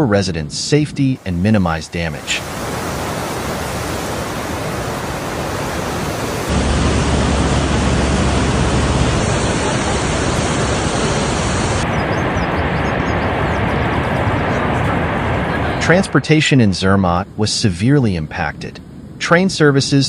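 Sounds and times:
floodwater rushing: 1.0s - 16.2s.

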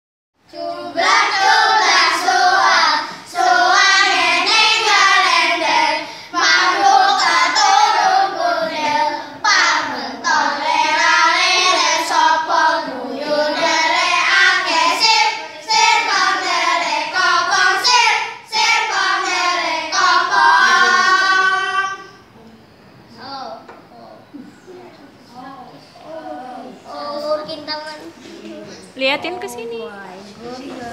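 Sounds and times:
boys singing together: 0.4s - 22.4s.

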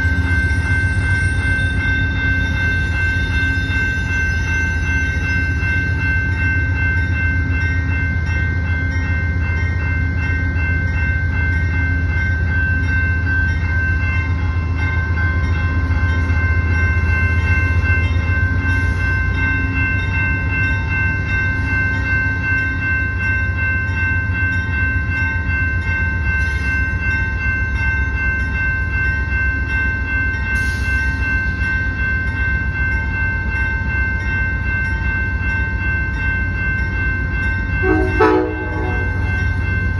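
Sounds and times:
crossing warning bell ringing: 0.0s - 39.9s
diesel locomotive rumble: 0.0s - 39.9s.

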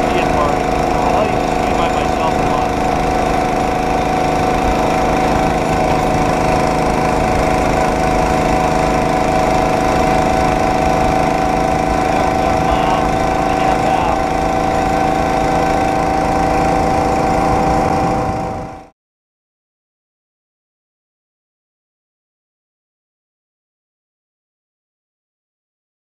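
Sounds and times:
rail cart engine running: 0.0s - 18.9s.

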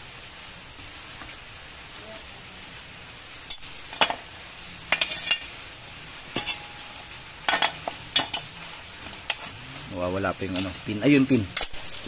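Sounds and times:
metal parts and tools clinking: 4.9s - 5.5s, 6.3s - 8.5s, 10.4s - 12.0s.

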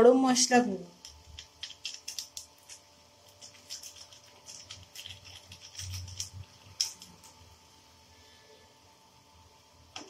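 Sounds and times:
food frying in a pan: 1.0s - 7.8s.

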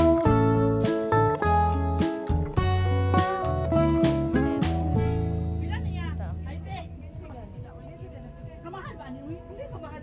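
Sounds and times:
acoustic guitar music: 0.0s - 6.6s
low bass notes: 0.0s - 7.7s.

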